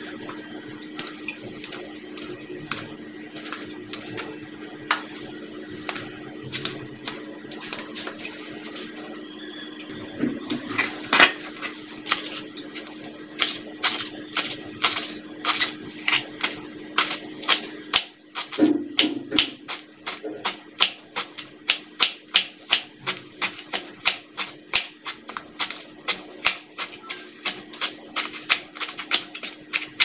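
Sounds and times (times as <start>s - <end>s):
steady low hum: 0.0s - 30.0s
knife chopping on cutting board: 13.4s - 30.0s.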